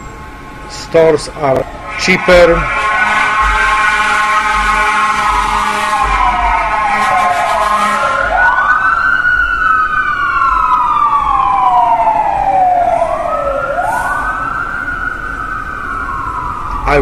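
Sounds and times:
emergency vehicle sirens wailing: 0.0 - 17.0.

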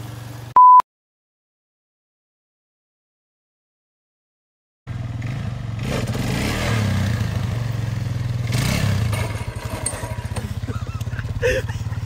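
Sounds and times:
quad bike engine revving: 4.9 - 12.0.

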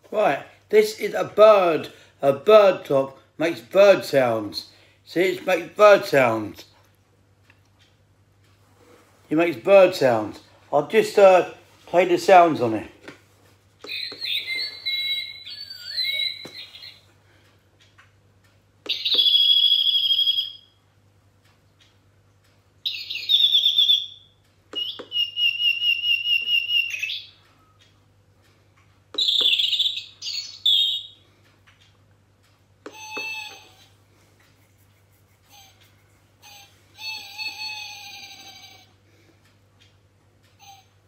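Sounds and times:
recorded bird calls from clock: 13.8 - 17.5, 18.8 - 20.9, 22.7 - 31.5, 32.8 - 34.0, 35.4 - 39.0, 40.4 - 41.0.

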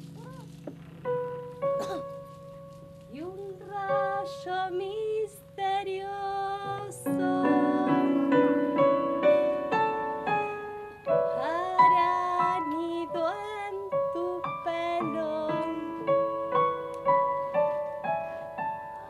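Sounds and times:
woman singing wordless melody: 3.1 - 9.3, 11.2 - 16.6.

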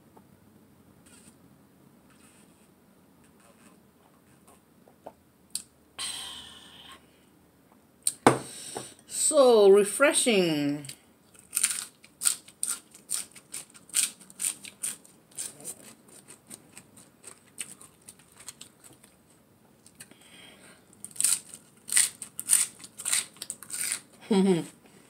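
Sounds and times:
crunchy food being eaten: 11.4 - 19.3, 21.0 - 24.1.

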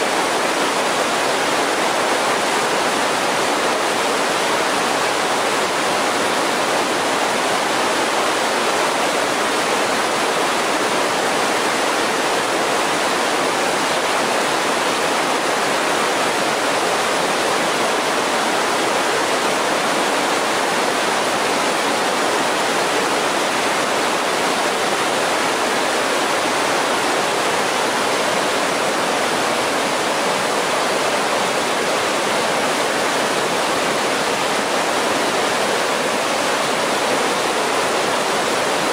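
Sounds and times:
creek rushing over boulders: 0.0 - 38.9.

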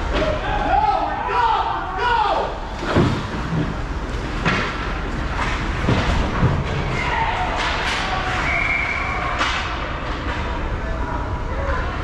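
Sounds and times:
rink background noise: 0.0 - 12.0
hockey sticks and puck clacking: 4.3 - 10.6.

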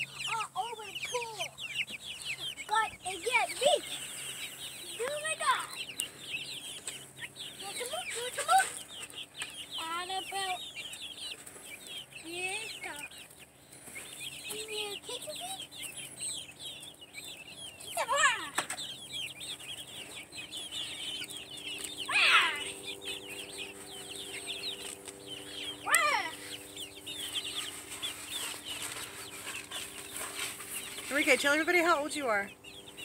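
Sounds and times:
chicks cheeping: 0.0 - 33.0
louder chicken calls: 16.0 - 31.1.

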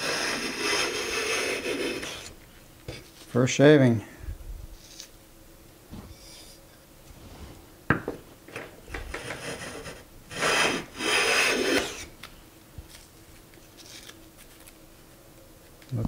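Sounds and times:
hand plane cutting wood: 0.0 - 2.3, 9.1 - 12.1.

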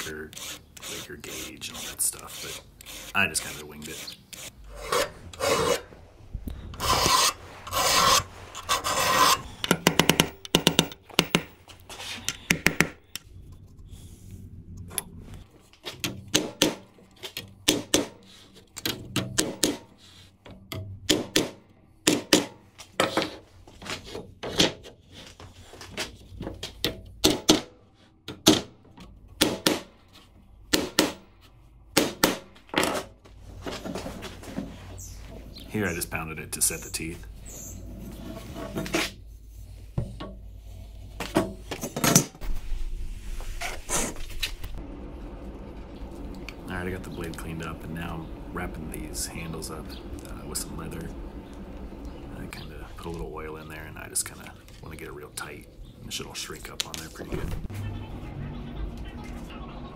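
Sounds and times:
file rasping on saw teeth: 0.0 - 5.8, 6.8 - 9.5
hammer striking saw teeth: 16.3 - 16.9, 17.6 - 18.2, 19.4 - 19.9, 20.7 - 22.6, 29.4 - 29.9.

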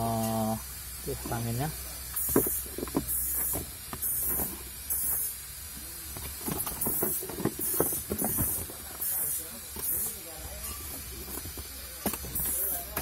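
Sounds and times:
short bursts of hiss: 0.0 - 13.0
cardboard and plastic rustling: 2.2 - 4.7, 6.1 - 9.1.

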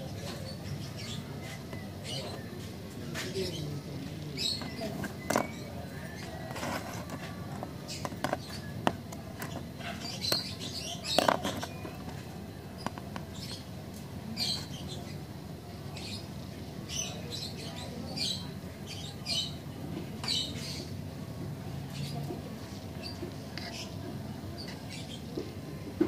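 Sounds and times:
scratches and clicks of handling: 4.4 - 13.6.

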